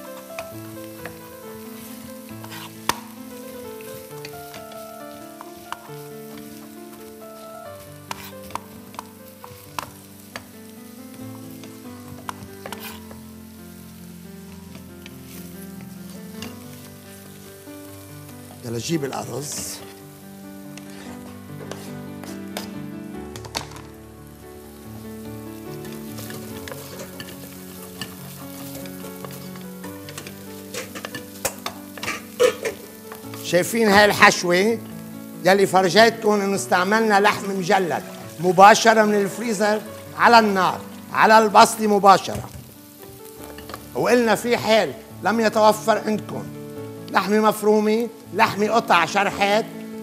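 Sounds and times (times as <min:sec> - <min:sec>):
food sizzling: 0:00.0 - 0:50.0
wooden spoon scraping a pot: 0:01.8 - 0:03.1, 0:08.0 - 0:10.0, 0:12.0 - 0:13.2, 0:20.8 - 0:22.8, 0:25.8 - 0:33.4.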